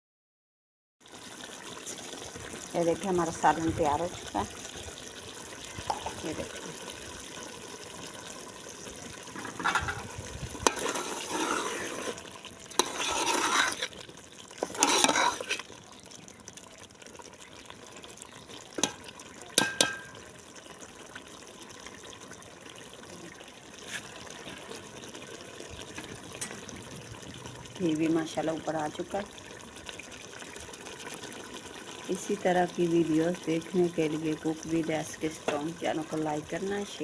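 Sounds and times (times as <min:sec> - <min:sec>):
wet sloshing of curry: 0:04.2 - 0:19.9
ladle clinking against pot: 0:19.6 - 0:20.2.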